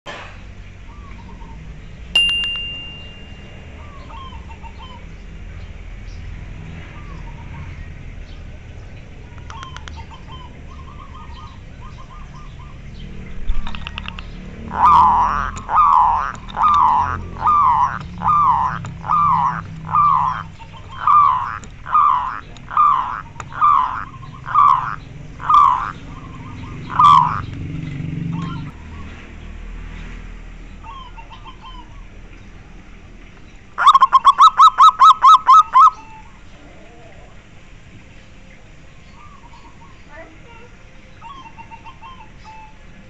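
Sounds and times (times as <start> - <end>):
dove cooing: 3.7 - 5.1, 13.8 - 29.1, 30.8 - 32.0, 33.8 - 37.5.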